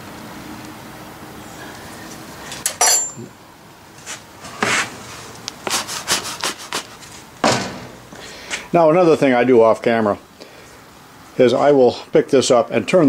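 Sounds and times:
metal tool clinking on workbench: 2.6 - 3.4.

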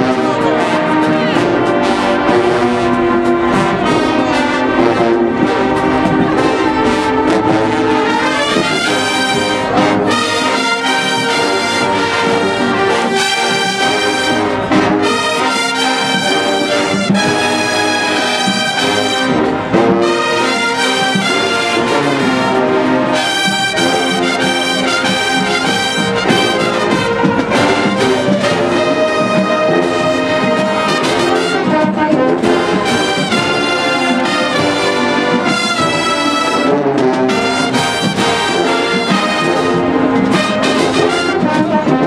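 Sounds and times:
marching band brass playing: 0.0 - 42.0.

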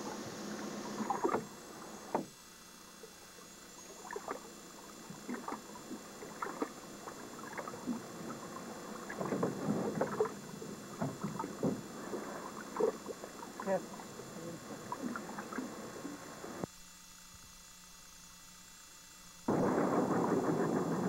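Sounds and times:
water slapping against boat hull: 1.0 - 2.4, 5.2 - 14.0.

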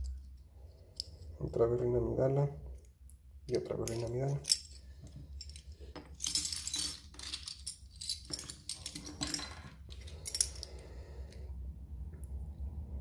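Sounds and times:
metal bottle caps clinking: 3.8 - 4.8, 5.4 - 10.8.

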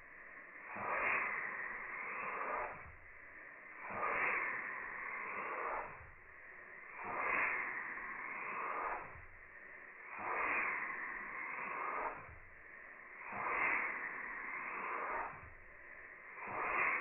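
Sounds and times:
engine exhaust hissing puffs: 0.0 - 17.0.

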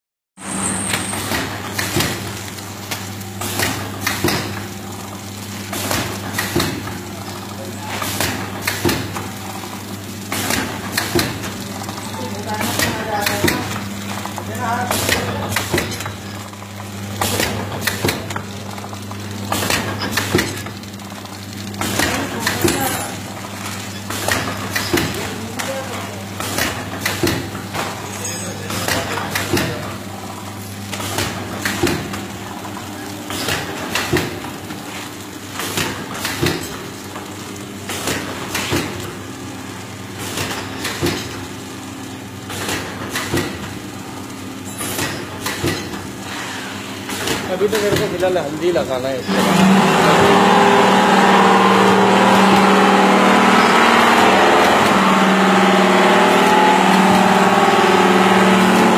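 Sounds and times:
machine electrical hum: 0.4 - 58.9
mechanical clacks: 47.0 - 50.3.

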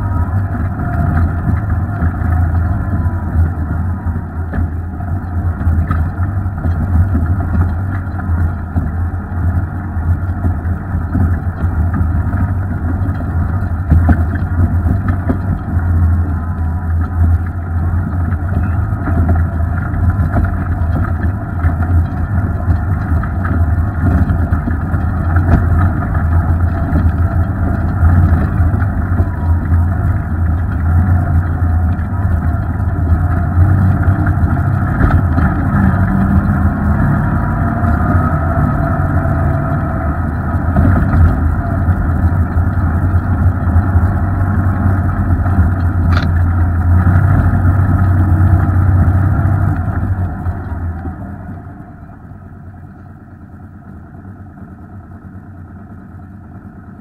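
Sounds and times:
vehicle engine droning: 0.0 - 57.0
clicks and knocks from rough ground: 4.4 - 51.2.

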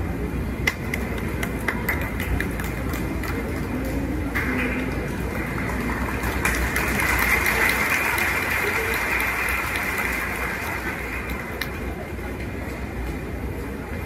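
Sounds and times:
crowd cheering and applauding: 0.9 - 11.8.

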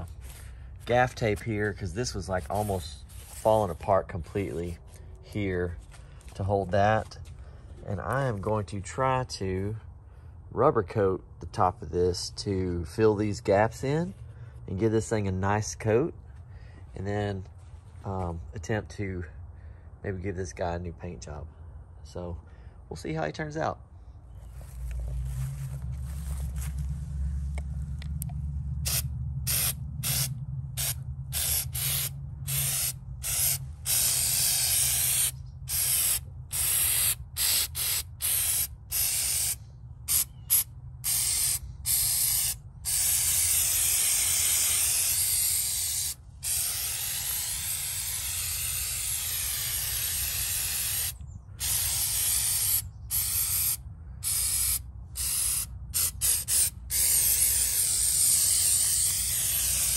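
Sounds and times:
aerosol spray hissing: 2.4 - 3.7, 28.9 - 59.9.

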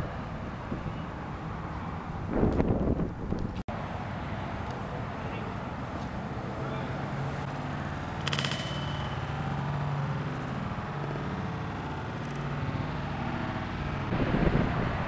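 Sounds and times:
disc hitting metal chains: 8.2 - 9.8.

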